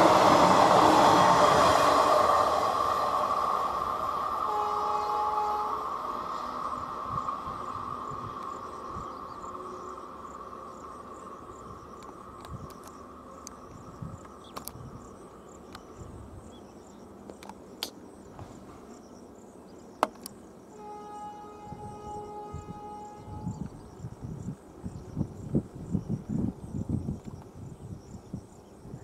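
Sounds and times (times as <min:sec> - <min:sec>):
train horn: 0:00.0 - 0:02.4, 0:04.4 - 0:06.6, 0:20.7 - 0:23.7
crickets chirping: 0:00.0 - 0:29.0
train rumbling on rails: 0:00.0 - 0:29.0.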